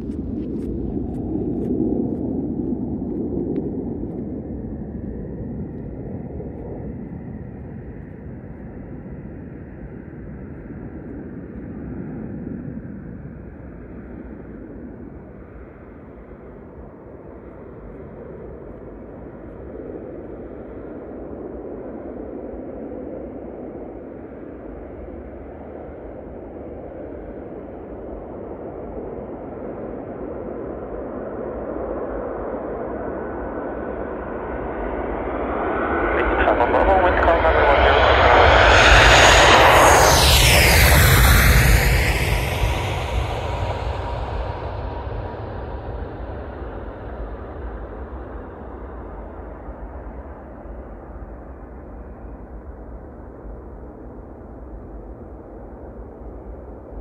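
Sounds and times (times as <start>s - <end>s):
distant jet rumble: 33.4s - 53.6s.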